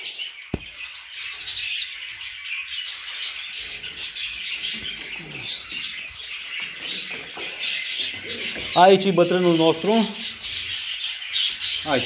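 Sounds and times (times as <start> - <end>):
pigeons chirping: 0.0 - 12.0
pigeon cooing: 3.7 - 8.8.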